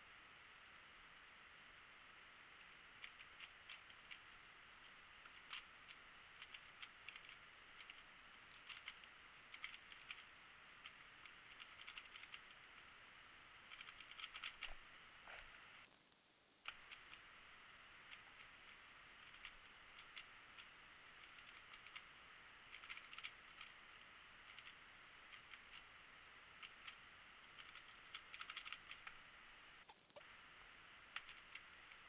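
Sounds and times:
steady hiss: 0.0s - 32.0s
puzzle cube clicking: 3.0s - 4.3s, 5.1s - 12.6s, 13.6s - 14.8s, 18.1s - 22.1s, 22.7s - 23.8s, 24.5s - 25.9s, 27.6s - 29.2s, 31.1s - 31.7s.

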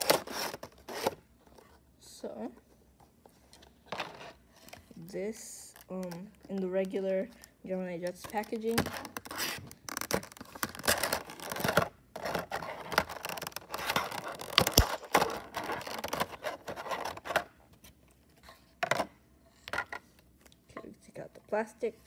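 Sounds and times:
plastic packaging crinkling: 5.6s - 17.5s.

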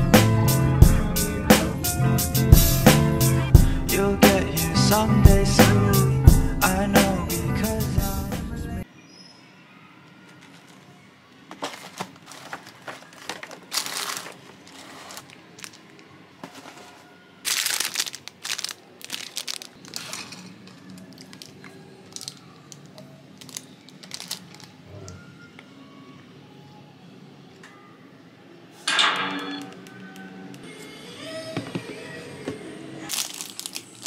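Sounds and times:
plastic wrapper crinkling: 11.5s - 24.8s, 33.1s - 34.0s.

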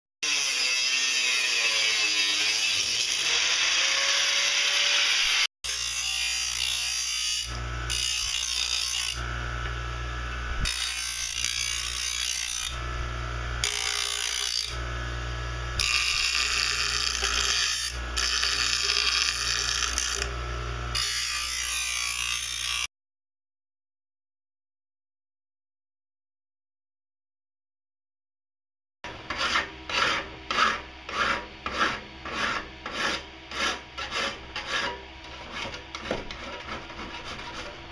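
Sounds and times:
bench grinder motor hum: 0.3s - 22.9s
grinding wheel on steel: 0.3s - 22.9s, 29.1s - 37.9s.

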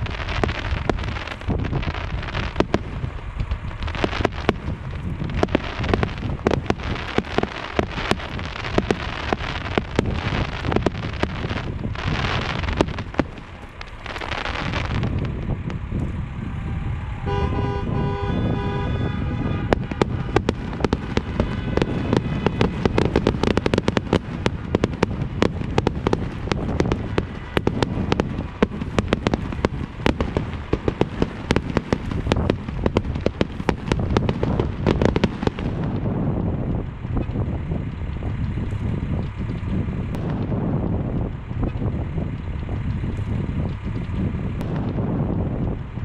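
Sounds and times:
fireworks bangs and crackling: 0.0s - 46.0s
wind rumble on microphone: 0.0s - 46.0s
car horn honking: 16.8s - 23.6s.

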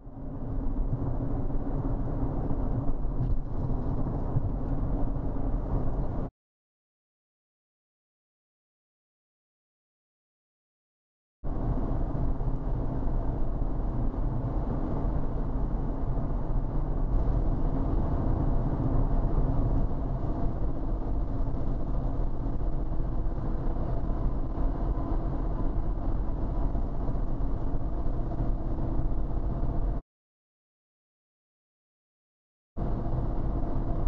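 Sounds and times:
car road and engine noise: 0.0s - 6.3s, 11.4s - 30.0s, 32.8s - 34.0s.

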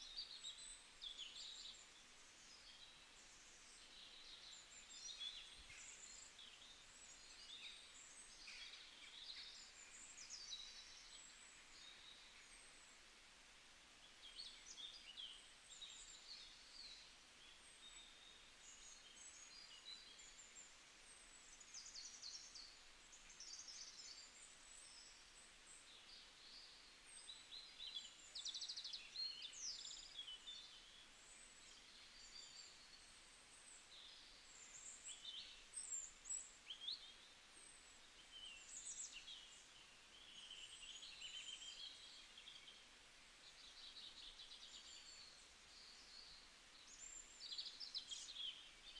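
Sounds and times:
birds chirping and twittering: 0.0s - 12.9s, 14.1s - 48.9s
steady low hiss: 0.0s - 48.9s.

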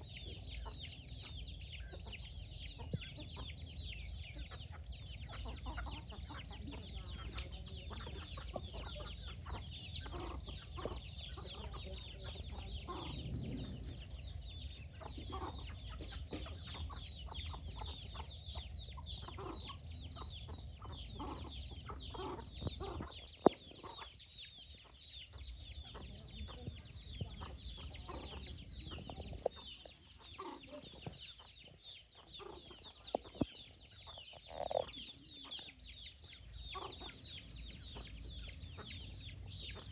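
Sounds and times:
chickens clucking: 0.0s - 39.9s
low steady rumble: 9.2s - 19.2s.

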